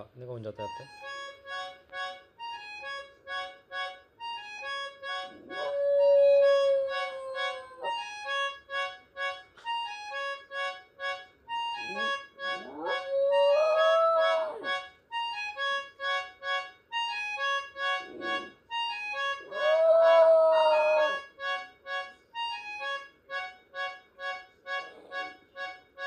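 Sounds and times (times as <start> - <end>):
music of short repeated notes: 0.5 - 6.0, 7.2 - 20.5
dog howling: 5.3 - 8.1, 11.9 - 14.8, 19.4 - 21.2.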